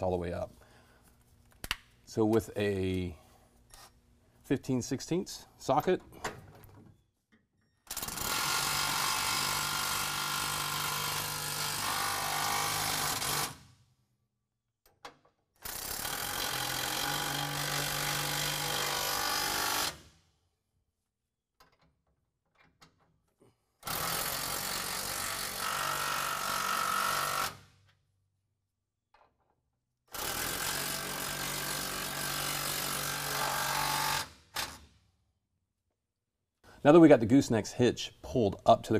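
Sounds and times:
impact wrench running bolts: 0:07.8 - 0:10.2.

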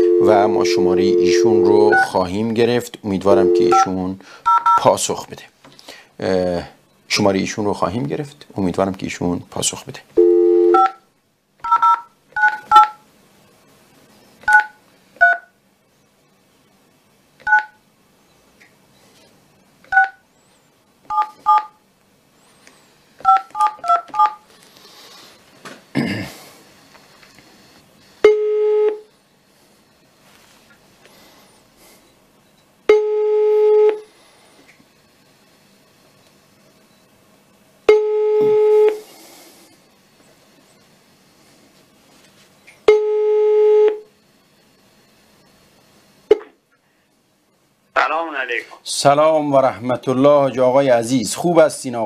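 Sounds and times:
phone keypad two-tone beeps: 0:00.0 - 0:02.1, 0:03.4 - 0:03.9, 0:10.2 - 0:11.0, 0:11.7 - 0:13.0.

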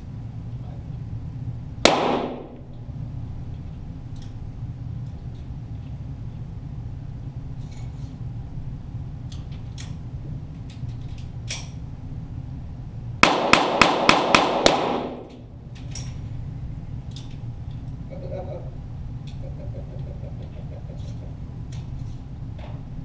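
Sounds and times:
steady low hum: 0:00.0 - 0:23.0
pistol gunshots: 0:01.8 - 0:02.7, 0:13.2 - 0:15.4.

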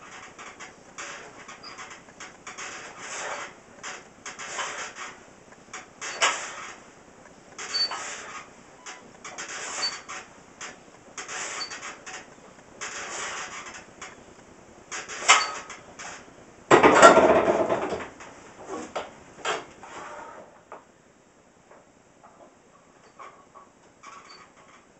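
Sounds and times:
bench press rep noise: 0:00.0 - 0:18.3.

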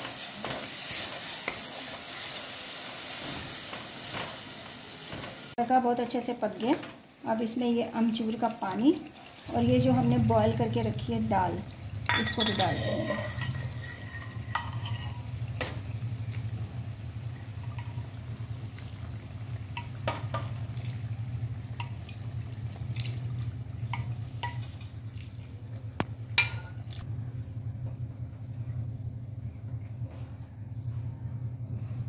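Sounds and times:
steady low hum: 0:09.6 - 0:32.0
wooden spatula scraping a pan: 0:12.6 - 0:15.3.

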